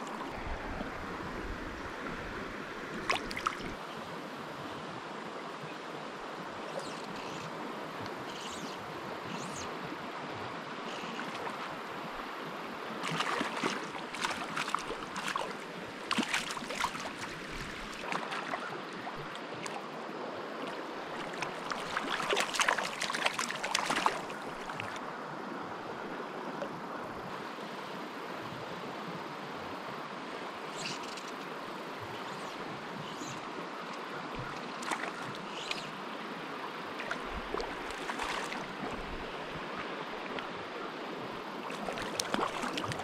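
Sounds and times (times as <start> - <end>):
stream flowing: 0.0 - 43.0
fish splashing at surface: 21.8 - 24.4.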